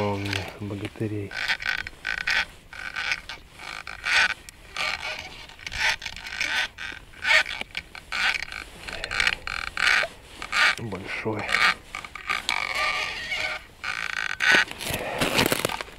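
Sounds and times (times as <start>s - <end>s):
fishing reel creaking: 0.0s - 15.9s.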